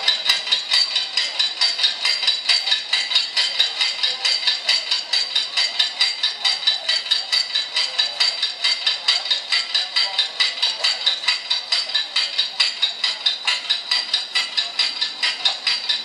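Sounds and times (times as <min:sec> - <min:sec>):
rhythmic metallic clinking: 0:00.0 - 0:16.0.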